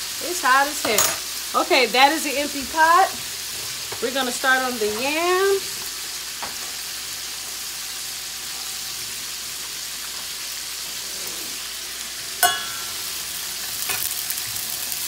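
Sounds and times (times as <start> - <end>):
chicken frying in hot oil: 0.0 - 15.0
sharp metal clank: 12.4 - 13.0.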